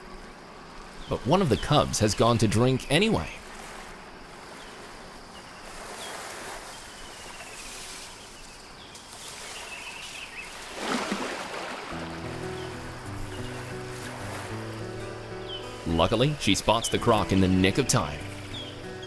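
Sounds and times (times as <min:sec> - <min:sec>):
background hiss: 0:00.0 - 0:19.0
bird chirps: 0:12.4 - 0:14.0, 0:14.6 - 0:19.0.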